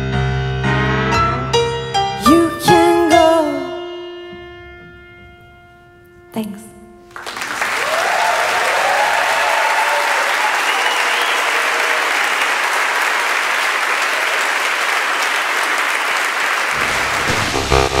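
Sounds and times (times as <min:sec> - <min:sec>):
audience applauding: 0:07.0 - 0:18.0
whistles: 0:10.5 - 0:11.8.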